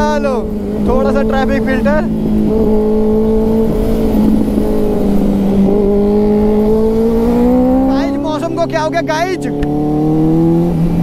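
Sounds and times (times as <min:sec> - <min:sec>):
wind rumble on microphone: 0:00.0 - 0:08.9
motorcycle engine running: 0:00.0 - 0:11.0.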